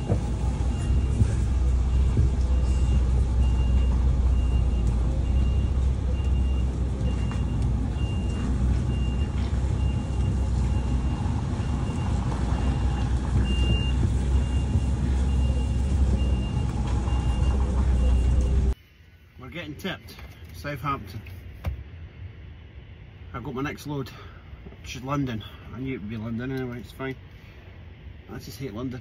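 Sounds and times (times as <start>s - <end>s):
lorry diesel engine running: 0.0s - 18.8s
reversing alarm beeps: 0.0s - 18.8s.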